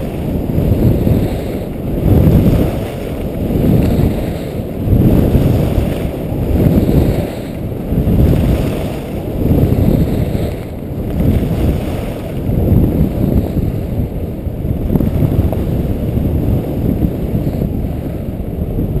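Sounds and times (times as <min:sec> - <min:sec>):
skis rushing on snow: 0:00.0 - 0:14.0
wind rushing over microphone: 0:00.0 - 0:19.0.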